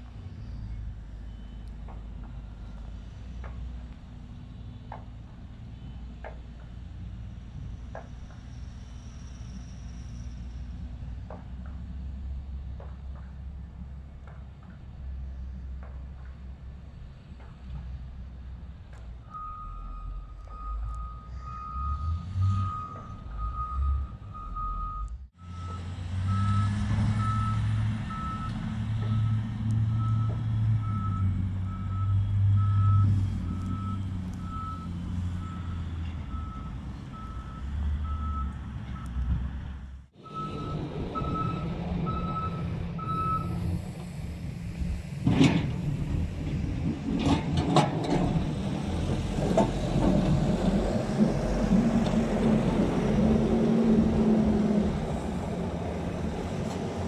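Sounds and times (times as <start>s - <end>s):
diesel engines running: 0.0s - 57.0s
reversing alarm beeping: 19.3s - 39.1s, 40.2s - 43.6s.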